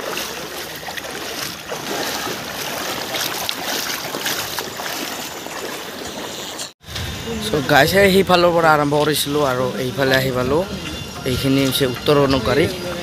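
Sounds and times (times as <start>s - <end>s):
floodwater sloshing and splashing: 0.0s - 6.8s.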